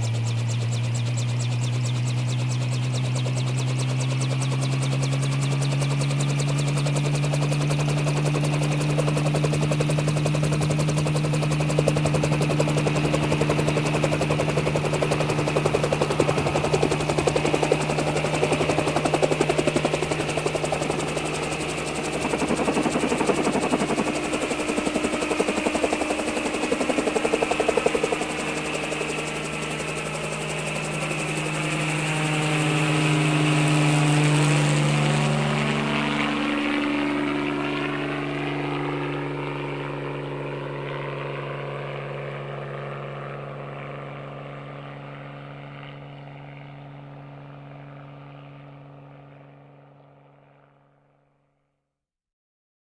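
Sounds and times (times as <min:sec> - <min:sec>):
helicopter rotor and engine: 0:00.0 - 0:51.4.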